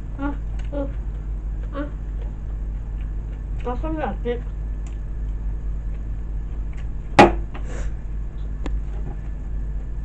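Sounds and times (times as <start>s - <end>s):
eating by hand: 0.0s - 7.1s
steady low hum: 0.0s - 10.0s.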